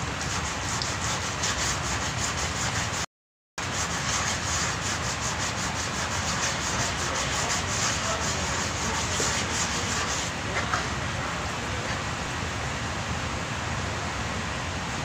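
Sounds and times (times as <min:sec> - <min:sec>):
sanding block rasping: 0:00.2 - 0:10.3.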